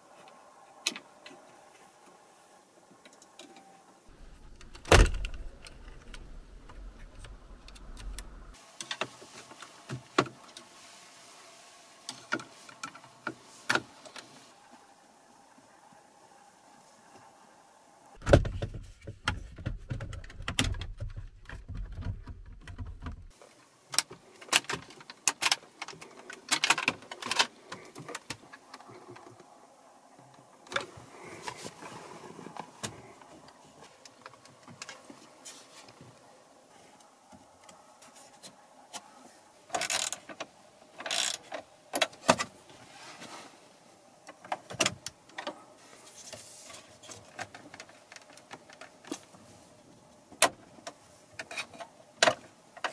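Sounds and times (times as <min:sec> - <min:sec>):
low rumble: 0:04.1 - 0:08.6.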